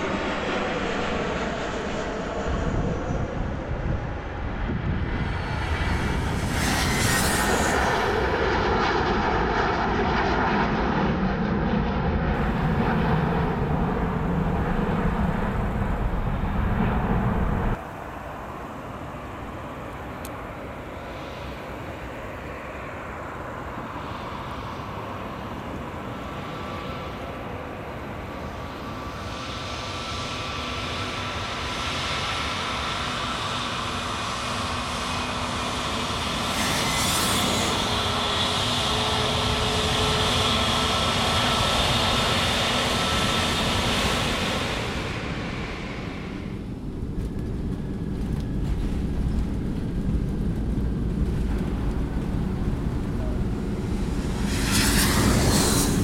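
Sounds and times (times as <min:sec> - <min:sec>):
jet engines roaring and whining: 0:00.0 - 0:56.0
low rumble: 0:12.4 - 0:17.8, 0:44.8 - 0:56.0.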